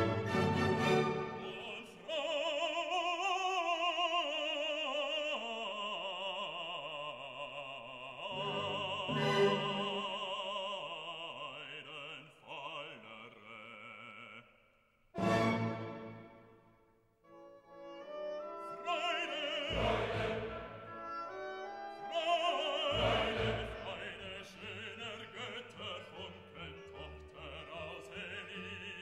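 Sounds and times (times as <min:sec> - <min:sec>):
operatic voice singing: 0:00.7 - 0:15.8, 0:18.4 - 0:29.0.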